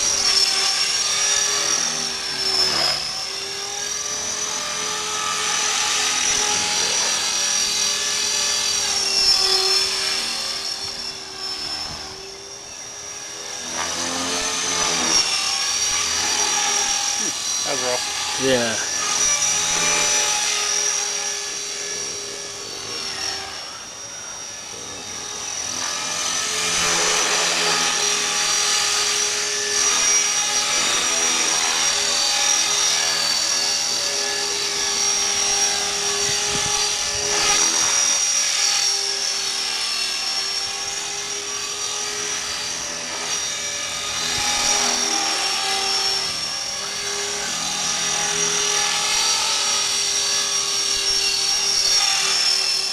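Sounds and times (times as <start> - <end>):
rc helicopter motor whine: 0.0 - 52.9.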